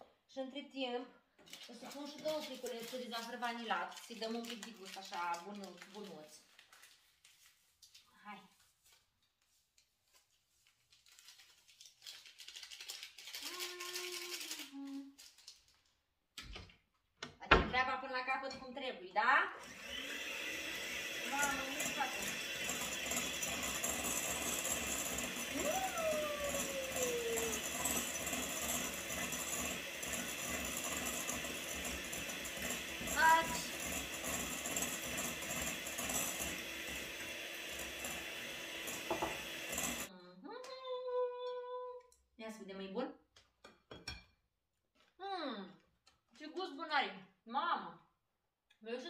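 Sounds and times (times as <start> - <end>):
electric hand mixer whisking: 1.5 - 5.6, 19.5 - 40.1
paper sachets tearing and crinkling: 1.5 - 16.0.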